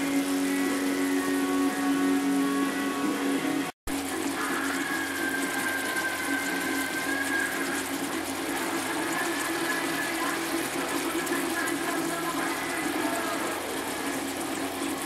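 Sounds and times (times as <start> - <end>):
meat sizzling in a skillet: 3.9 - 15.0.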